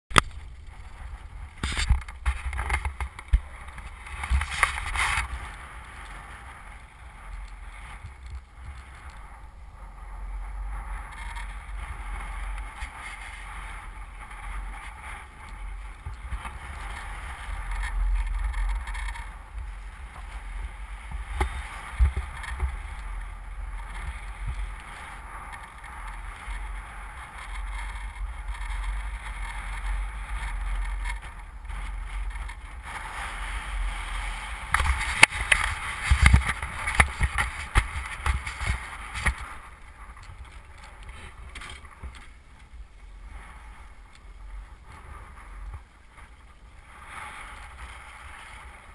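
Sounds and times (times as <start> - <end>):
wind buffeting microphone: 0.1 - 48.9
knocks and scrapes on microphone: 1.6 - 5.6, 21.0 - 23.1, 27.4 - 42.3.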